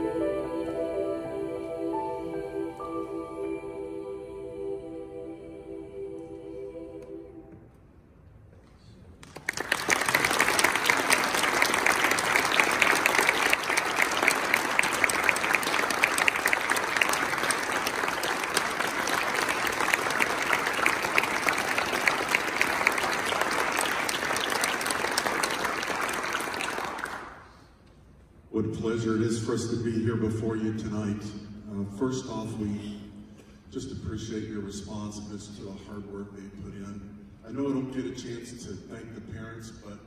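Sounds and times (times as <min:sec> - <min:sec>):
audience applause: 0:09.2 - 0:27.5.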